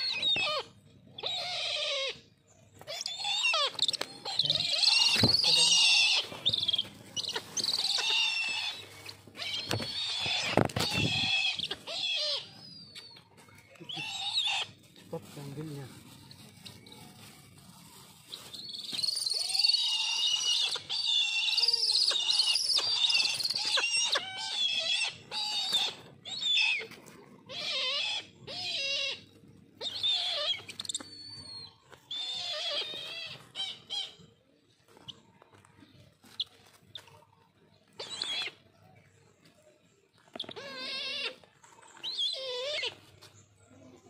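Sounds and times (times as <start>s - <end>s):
birds of prey screaming: 0.0s - 12.9s, 13.8s - 14.8s, 19.2s - 26.9s, 27.5s - 34.2s.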